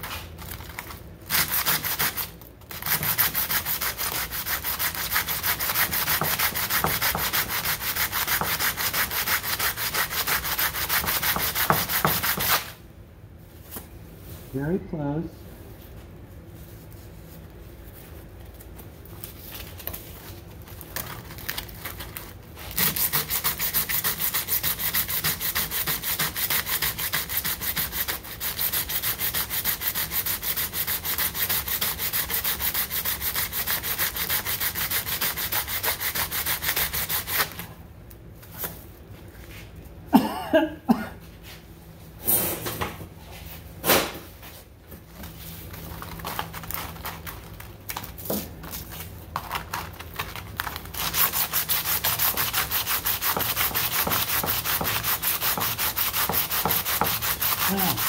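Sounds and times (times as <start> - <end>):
sandpaper sanding strokes: 2.8 - 12.6, 22.8 - 37.5, 51.0 - 58.0.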